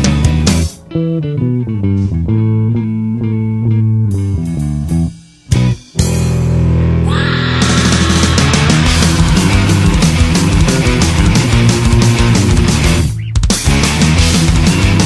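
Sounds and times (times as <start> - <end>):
rock band with guitar and bass riff: 0.0 - 15.0.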